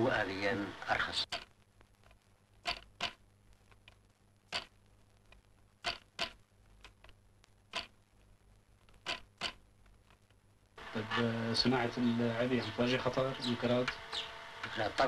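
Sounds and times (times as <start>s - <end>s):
wooden loom clacking: 2.6s - 3.2s, 5.8s - 6.4s, 9.0s - 9.6s.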